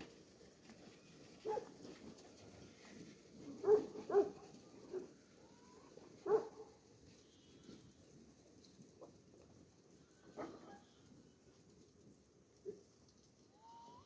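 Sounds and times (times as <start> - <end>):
dog barking: 1.4 - 1.7, 3.6 - 5.1, 6.2 - 6.8, 10.4 - 10.8.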